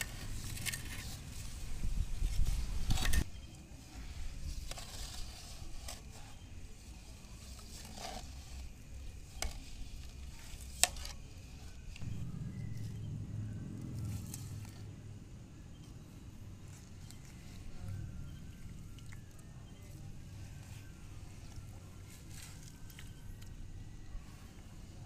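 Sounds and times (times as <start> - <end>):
loud low rumble: 12.0 - 22.0.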